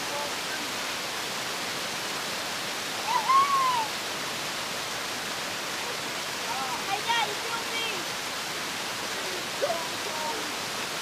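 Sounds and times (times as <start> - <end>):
waterfall splashing over rocks: 0.0 - 11.0.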